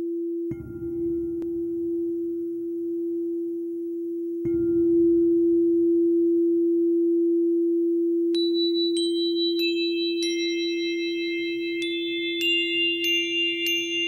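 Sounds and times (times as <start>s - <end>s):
low singing bowl drone: 0.0s - 14.0s
high bell-like tones: 8.4s - 14.0s.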